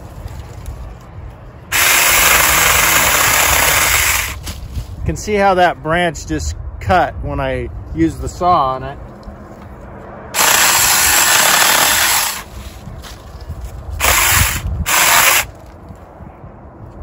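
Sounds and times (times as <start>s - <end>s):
chainsaw cutting branches: 1.7s - 4.5s, 10.4s - 12.5s, 14.0s - 15.6s.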